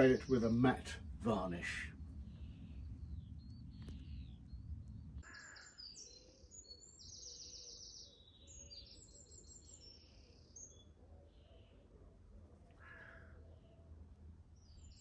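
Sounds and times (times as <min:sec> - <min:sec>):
small birds chirping and trilling: 0:00.0 - 0:15.0
lower bird call: 0:01.8 - 0:12.0.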